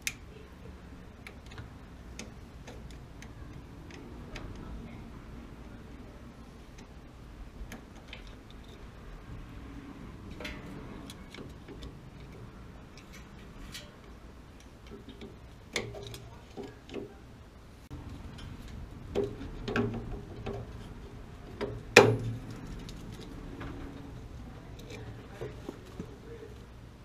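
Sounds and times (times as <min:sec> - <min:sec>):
screwdriver clicking and tapping metal: 0:01.2 - 0:04.7.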